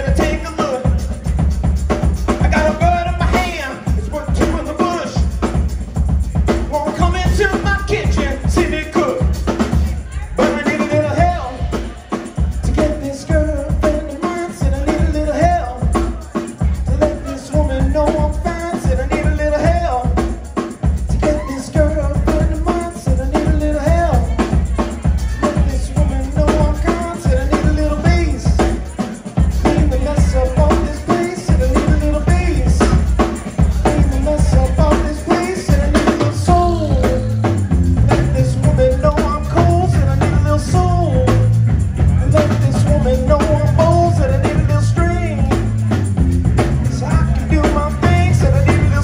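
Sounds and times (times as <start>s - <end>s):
drum beat: 0.0s - 49.0s
lead singer singing: 0.0s - 49.0s
live band playing: 0.0s - 49.0s
tambourine: 0.0s - 49.0s
electric bass line: 29.4s - 49.0s.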